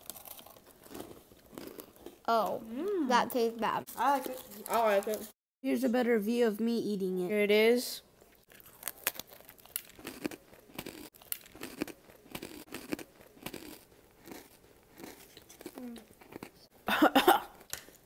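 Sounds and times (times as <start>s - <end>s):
crunchy chewing: 0.0s - 2.3s, 8.4s - 16.7s.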